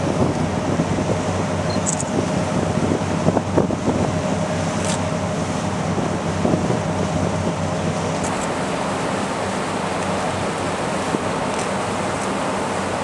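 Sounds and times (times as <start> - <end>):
wind buffeting microphone: 0.0 - 12.1
boat engine running: 0.0 - 13.0.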